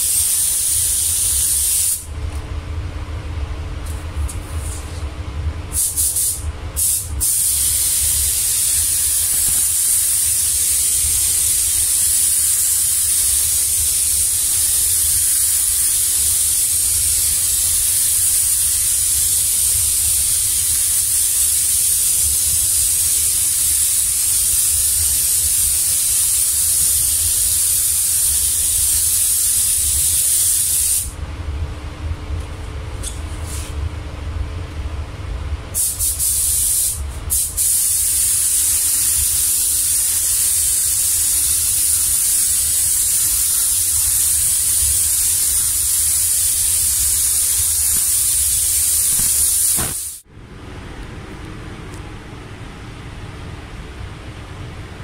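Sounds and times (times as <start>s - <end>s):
short air blasts: 0.0s - 2.1s, 5.7s - 31.2s, 35.8s - 50.3s
spray gun hissing: 0.0s - 2.1s, 5.8s - 31.1s, 35.8s - 50.2s.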